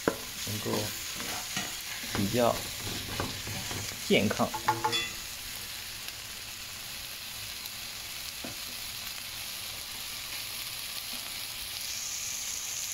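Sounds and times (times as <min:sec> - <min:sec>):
food sizzling in a wok: 0:00.0 - 0:12.9
wooden spatula stirring: 0:00.1 - 0:05.1.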